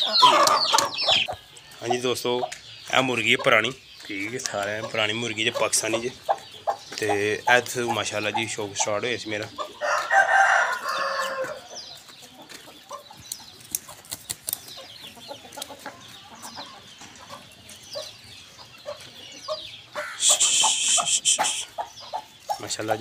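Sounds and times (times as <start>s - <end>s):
chickens clucking: 0.0s - 23.0s
high chirps and clicks: 0.1s - 1.5s, 13.2s - 14.8s, 20.2s - 21.8s.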